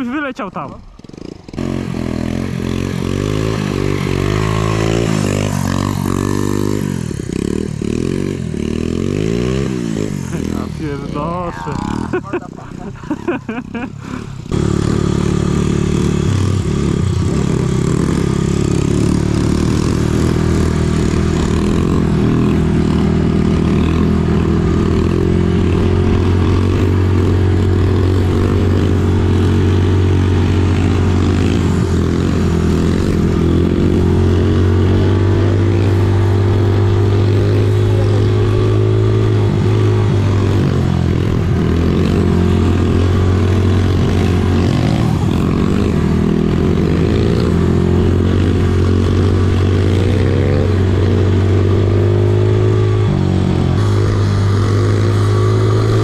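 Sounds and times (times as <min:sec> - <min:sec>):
motorbike engine running: 0:00.0 - 0:56.0.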